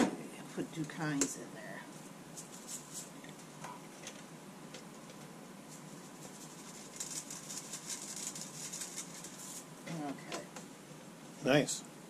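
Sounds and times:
seasoning shaken from jar: 6.1s - 9.5s.

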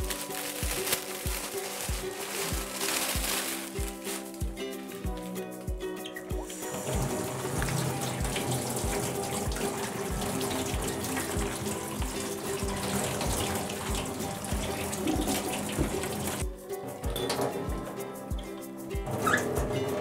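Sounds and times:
background music with steady beat: 0.0s - 20.0s
tap water running into steel sink: 6.4s - 16.4s.

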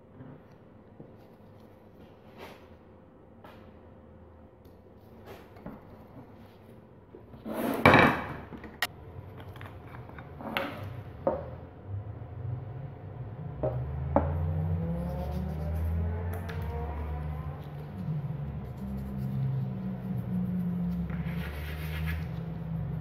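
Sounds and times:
low hum: 8.8s - 23.0s.

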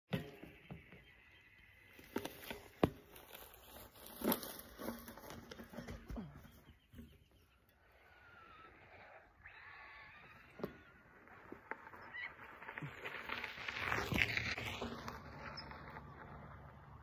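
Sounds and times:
unicycle knocks and scuffs on gravel: 1.9s - 7.2s.

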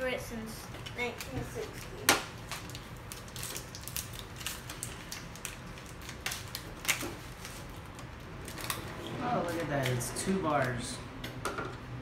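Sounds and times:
plastic wrapper crinkling: 1.1s - 9.8s.

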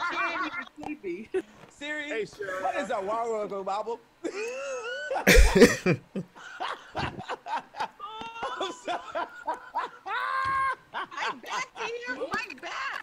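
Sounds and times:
people laughing hard: 4.3s - 12.3s.

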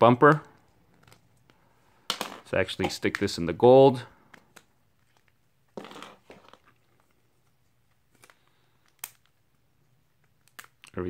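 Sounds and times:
phone case rustling scrape: 5.8s - 6.8s.

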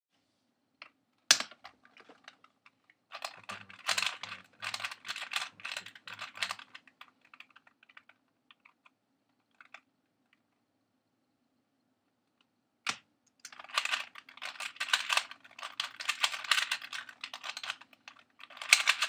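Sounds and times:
faint steady hum: 0.2s - 19.0s
plastic puzzle cube clacking: 1.3s - 10.4s, 12.9s - 19.0s.

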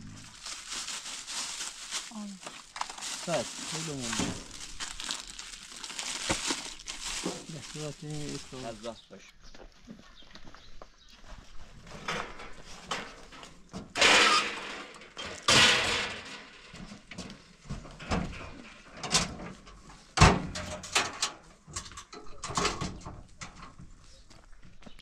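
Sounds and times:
rustling scrapes: 0.0s - 8.9s.

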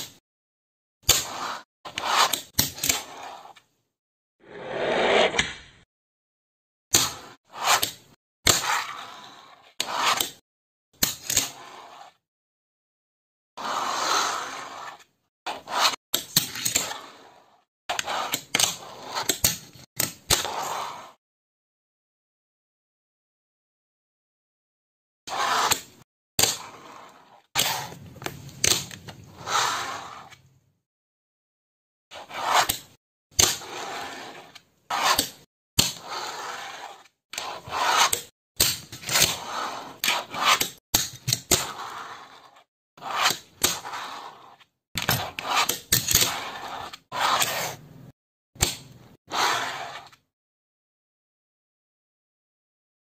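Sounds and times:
fingerboard clacks and scrapes: 1.0s - 3.7s, 6.9s - 10.4s, 11.0s - 12.2s, 13.6s - 21.2s, 25.3s - 30.5s, 32.1s - 47.9s, 48.6s - 50.3s
small wheels rolling on tabletop: 36.0s - 38.2s, 41.5s - 47.8s.

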